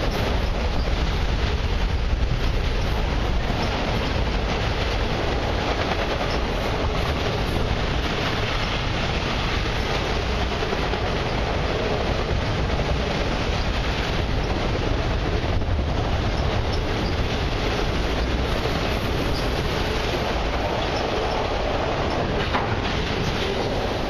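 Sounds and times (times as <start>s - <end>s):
train wheels rolling on rail: 0.0s - 24.0s.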